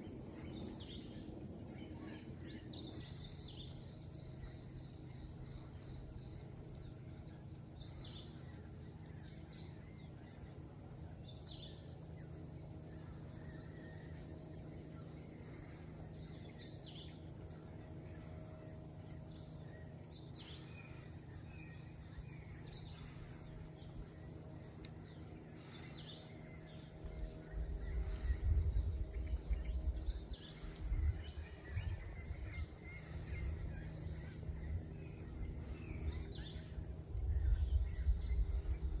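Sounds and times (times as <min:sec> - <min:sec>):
high insect buzz: 0:01.8 - 0:39.0
wind buffeting microphone: 0:27.0 - 0:39.0.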